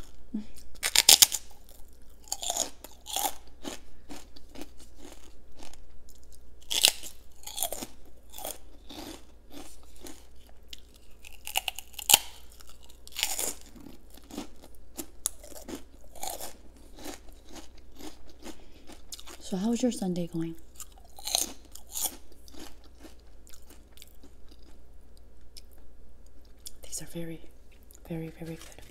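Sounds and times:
crunching prawn crackers: 0.0s - 19.5s, 20.7s - 25.8s.

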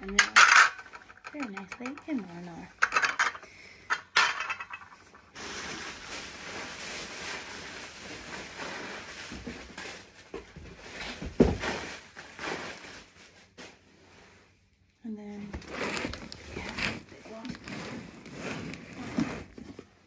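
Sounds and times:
packing wrap rustling: 5.1s - 13.8s, 15.6s - 19.8s.

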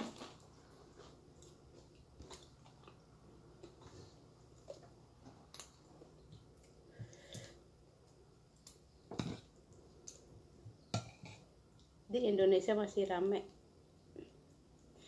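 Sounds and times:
chewing crunchy crackers: 0.0s - 3.8s.

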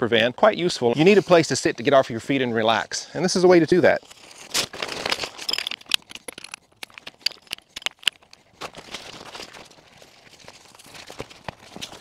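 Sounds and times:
nylon sack rustling: 8.2s - 12.0s.

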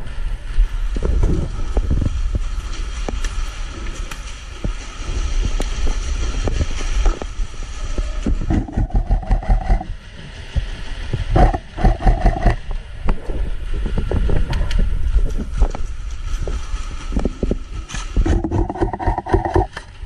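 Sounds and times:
rumbling handling noise: 0.0s - 20.0s
knocks and clicks: 8.5s - 9.9s, 11.4s - 12.6s, 18.2s - 19.9s.

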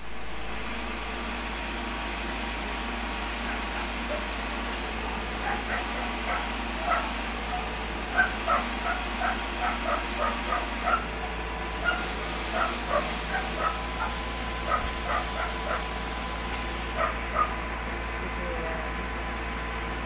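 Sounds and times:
steady background hum: 0.0s - 20.0s
dog barking: 3.4s - 4.3s, 5.4s - 11.1s, 11.8s - 15.9s, 17.0s - 17.6s.

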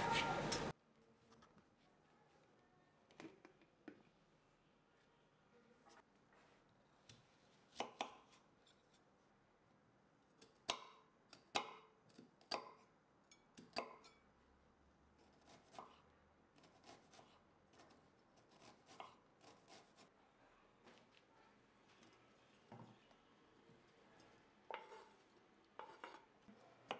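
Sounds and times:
knife chopping on cutting board: 25.8s - 26.2s.

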